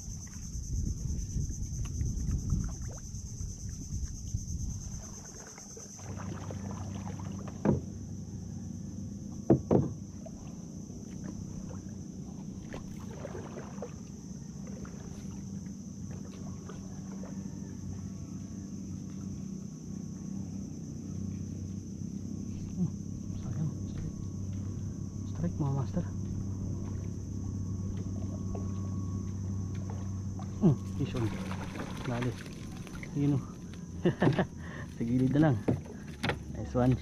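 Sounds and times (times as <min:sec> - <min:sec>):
water lapping at hull: 0:00.0 - 0:37.0
wooden paddle knocking hull: 0:07.4 - 0:07.9, 0:09.4 - 0:10.1, 0:35.2 - 0:37.0.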